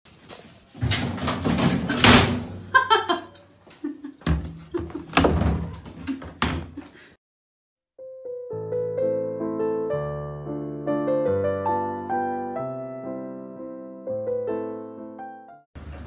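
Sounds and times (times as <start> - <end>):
washing machine lid banging: 0.8 - 2.6
piano tune: 8.0 - 15.7.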